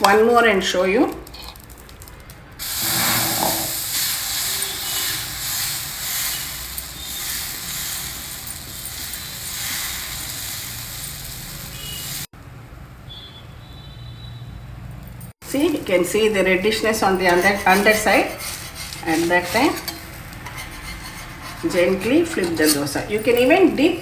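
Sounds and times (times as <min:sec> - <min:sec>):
batter sizzling on hot griddle: 0:02.6 - 0:12.3.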